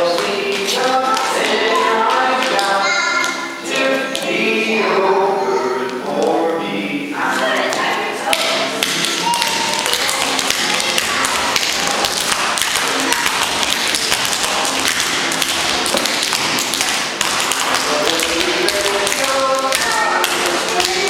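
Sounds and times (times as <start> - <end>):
tap shoes tapping on stage floor: 7.7 - 21.0.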